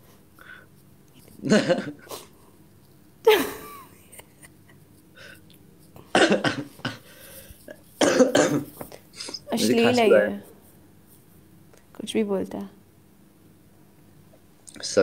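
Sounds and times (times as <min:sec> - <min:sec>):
person coughing: 0:01.4 - 0:02.3, 0:06.1 - 0:07.2, 0:08.0 - 0:09.5.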